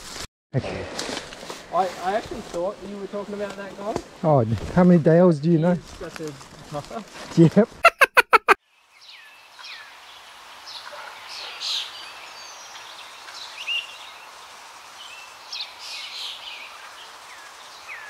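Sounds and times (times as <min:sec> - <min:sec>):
bush ambience hiss: 0:00.7 - 0:04.9, 0:08.8 - 0:18.0.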